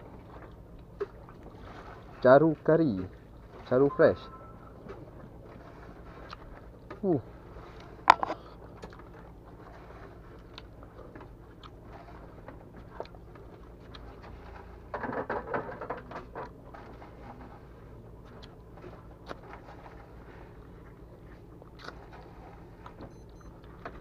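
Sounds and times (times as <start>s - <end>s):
low hum: 3.1s - 11.2s
chewing: 6.1s - 6.5s, 7.7s - 14.4s, 18.2s - 19.9s, 21.3s - 23.8s.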